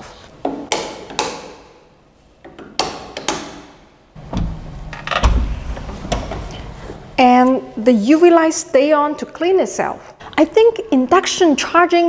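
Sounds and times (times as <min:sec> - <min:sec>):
sharp knocks in bare room: 0:00.4 - 0:01.9, 0:02.5 - 0:06.6.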